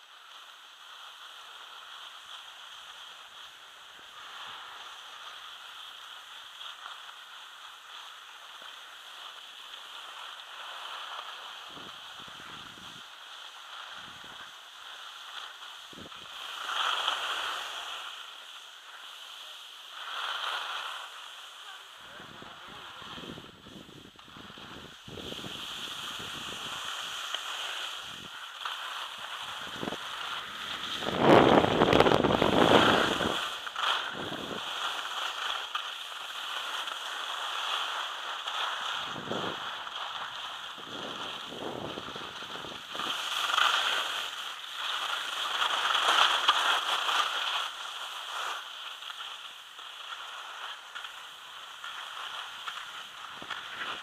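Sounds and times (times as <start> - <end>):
skis scraping over packed snow: 0.0 - 54.0
wind buffeting microphone: 29.6 - 33.5.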